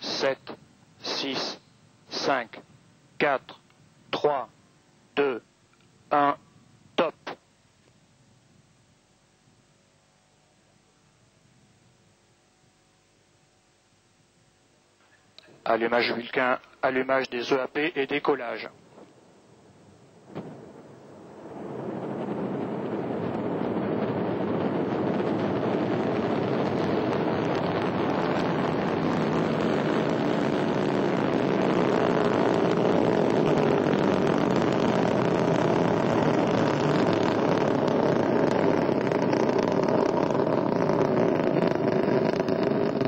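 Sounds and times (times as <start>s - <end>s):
rocket engine roar: 0.0s - 2.6s, 20.1s - 43.0s.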